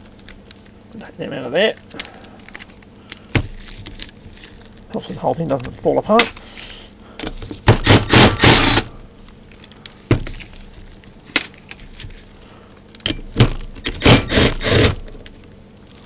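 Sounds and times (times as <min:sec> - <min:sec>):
cordless power driver bursts: 0:07.7 - 0:08.9, 0:13.8 - 0:15.0.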